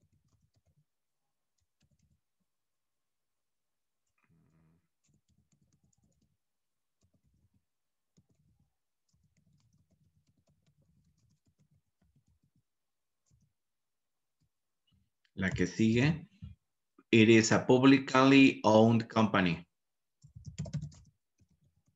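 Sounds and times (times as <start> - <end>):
faint keyboard typing: 0.0 - 2.4, 4.0 - 13.6, 20.2 - 21.9.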